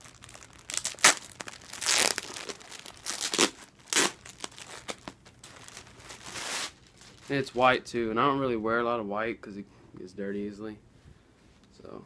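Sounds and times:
packaging crinkling and tearing: 0:00.0 - 0:07.5.

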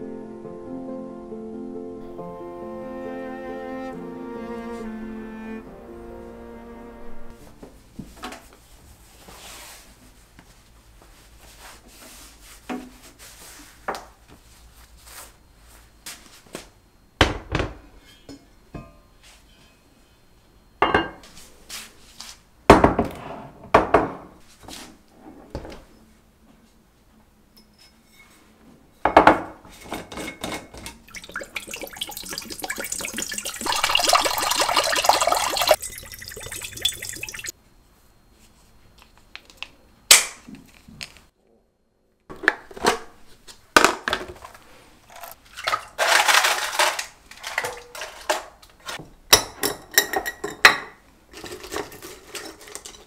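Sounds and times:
water poured into pot: 0:31.0 - 0:37.5.

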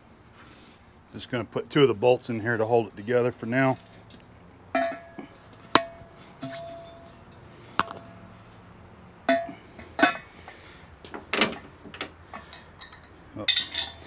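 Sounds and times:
steel parts clanking: 0:04.8 - 0:08.4, 0:11.4 - 0:14.0.

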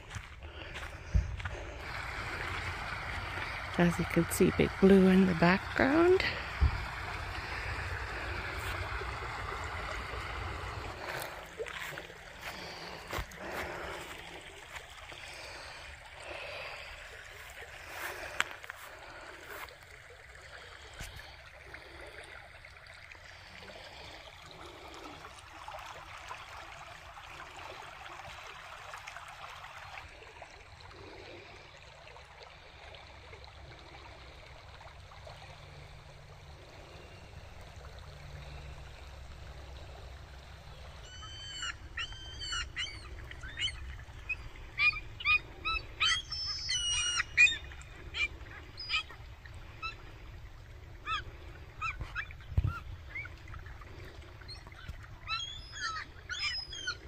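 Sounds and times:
small creek running: 0:00.0 - 0:57.0
gulls calling: 0:40.6 - 0:50.2, 0:50.8 - 0:57.0.

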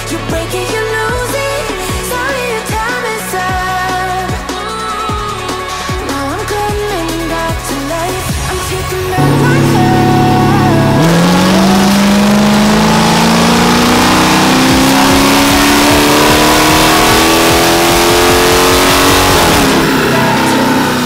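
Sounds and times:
car engine at full throttle: 0:09.2 - 0:21.0.

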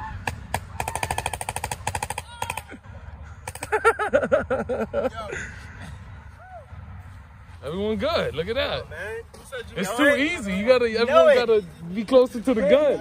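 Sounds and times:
paintball gun firing: 0:00.2 - 0:02.7
person yelling: 0:02.2 - 0:02.8.

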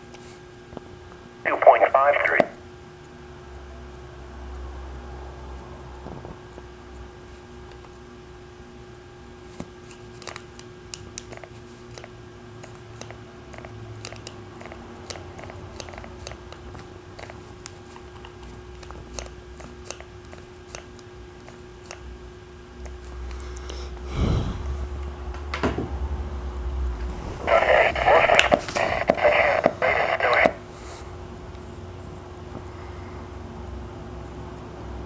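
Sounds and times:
faint steady hum: 0:00.0 - 0:35.0
radio scanner clicking: 0:01.5 - 0:02.6, 0:09.9 - 0:22.1, 0:27.4 - 0:30.6
static bursts: 0:01.5 - 0:02.6, 0:26.8 - 0:30.6.

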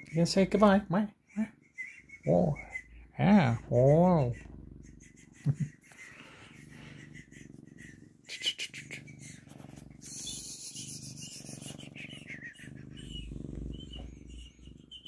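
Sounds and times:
cat purring: 0:01.5 - 0:15.0
fur rubbing on phone: 0:09.2 - 0:11.9.

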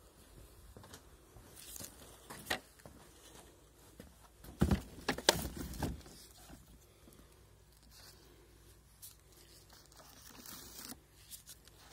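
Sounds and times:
plastic knocks and clunks: 0:04.5 - 0:06.1.

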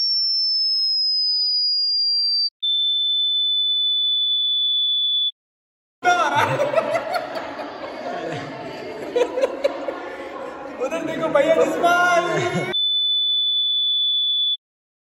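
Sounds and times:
men laughing: 0:06.0 - 0:12.8
men talking: 0:06.0 - 0:12.8
steady low beep tone: 0:12.7 - 0:14.6.

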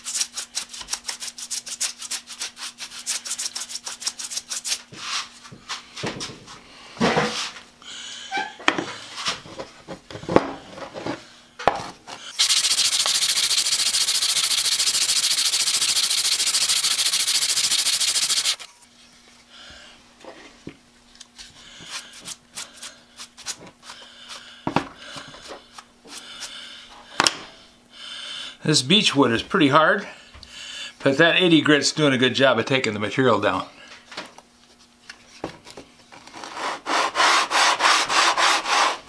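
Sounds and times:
wood rasping on sandpaper: 0:00.0 - 0:05.3, 0:12.4 - 0:18.7, 0:36.5 - 0:39.0.

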